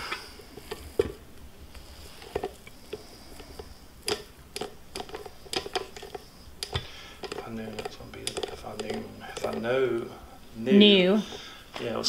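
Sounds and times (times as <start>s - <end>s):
soft squishes of dough: 0.2s - 12.0s
spatula scraping dough in bowl: 1.8s - 10.2s
light taps against bowl: 4.1s - 9.7s.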